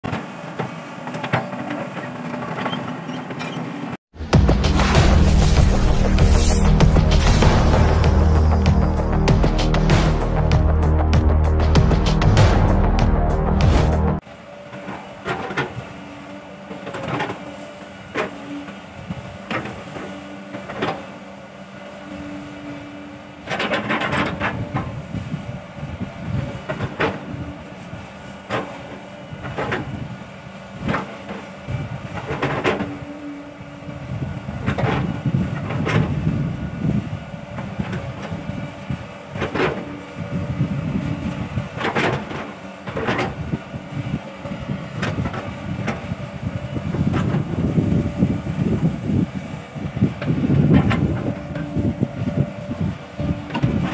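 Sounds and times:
excavator diesel engine: 0:00.1 - 0:53.9
excavator bucket clanks: 0:41.8 - 0:43.4.

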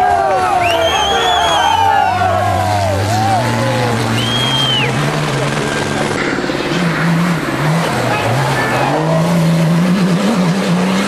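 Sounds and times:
spectators' voices: 0:00.0 - 0:09.4
short high whistle: 0:00.6 - 0:01.8
car engine revving hard: 0:01.6 - 0:11.0.

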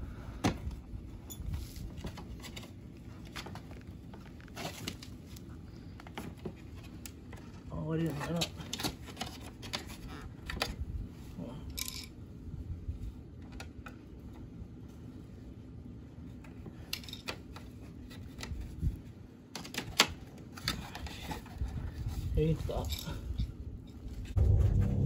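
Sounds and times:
low background rumble: 0:23.2 - 0:25.0.

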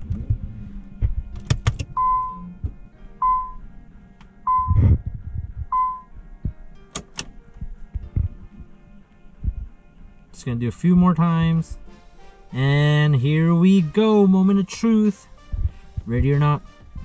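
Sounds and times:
ignition key clicks: 0:01.4 - 0:02.4, 0:06.9 - 0:07.4
dashboard warning chime beeping: 0:01.8 - 0:02.6, 0:03.2 - 0:03.7, 0:04.4 - 0:04.8, 0:05.7 - 0:06.2.

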